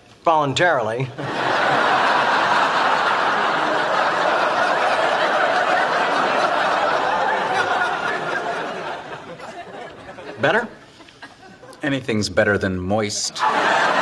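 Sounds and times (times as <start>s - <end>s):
studio audience laughing: 1.2s - 11.8s, 13.4s - 14.0s.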